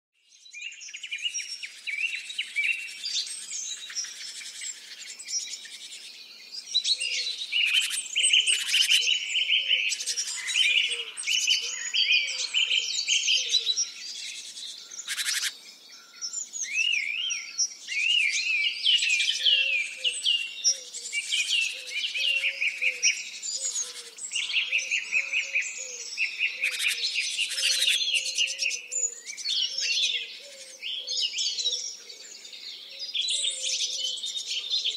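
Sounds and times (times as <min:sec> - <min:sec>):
songbirds singing: 0:00.2 - 0:34.9.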